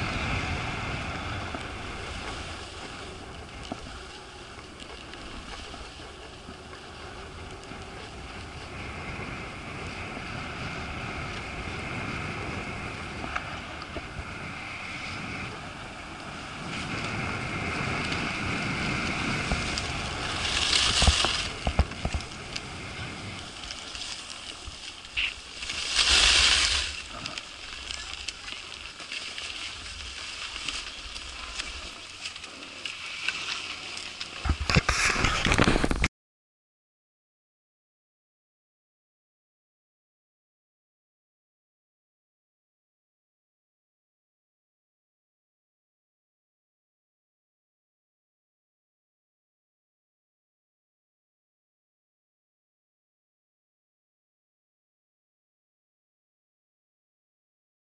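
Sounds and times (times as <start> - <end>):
skis hissing over snow: 0.0 - 36.0
ski edges scraping snow: 0.0 - 36.1
wind on microphone: 0.0 - 36.1.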